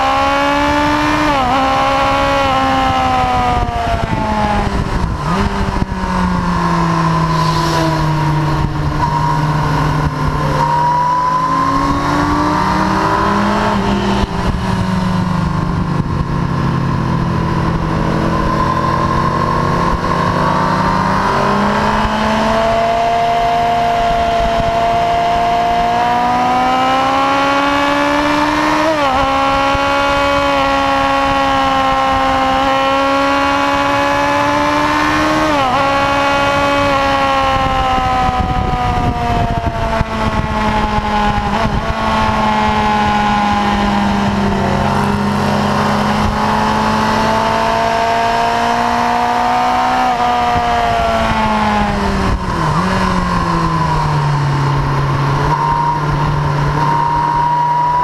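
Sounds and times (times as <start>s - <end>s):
motorcycle engine at high revs: 0.0s - 58.0s.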